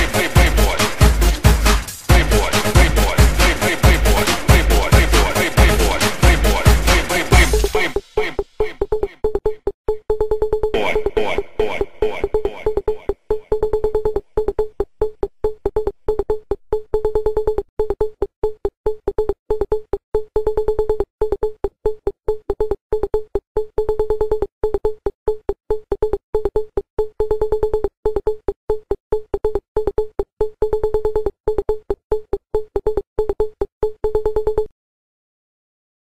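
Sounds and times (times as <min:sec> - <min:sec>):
stuttering synthesizer pulses: 0:00.0 - 0:16.1.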